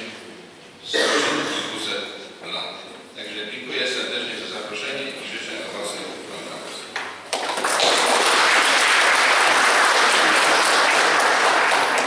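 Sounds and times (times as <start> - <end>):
audience applauding: 7.3 - 12.0.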